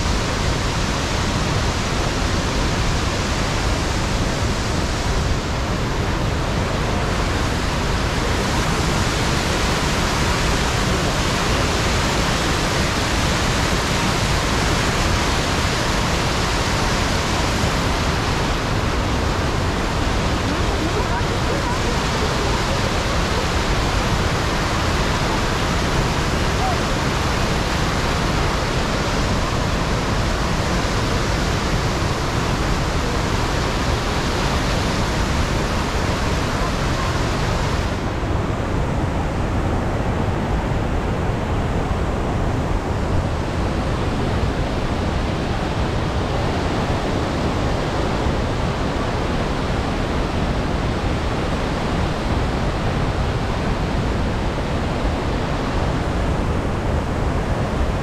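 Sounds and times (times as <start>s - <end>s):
roar of rushing water: 0.0s - 58.0s.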